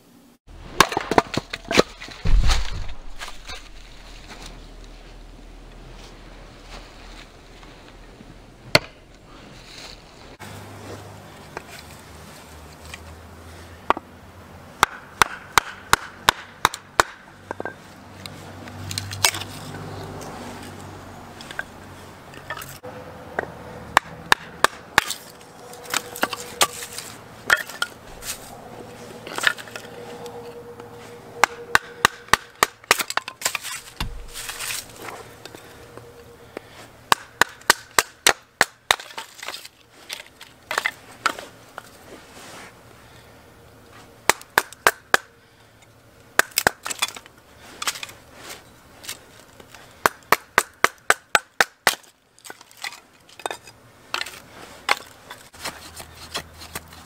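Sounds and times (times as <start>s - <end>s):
baton striking knife spine: 31.4s - 34.9s.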